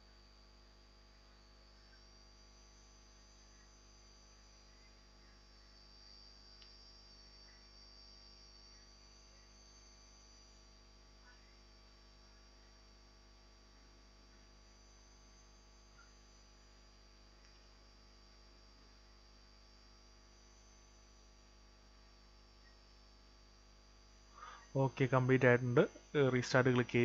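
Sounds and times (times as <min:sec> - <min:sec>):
faint electrical hum: 0:00.0 - 0:27.0
high-pitched whine: 0:01.1 - 0:12.7.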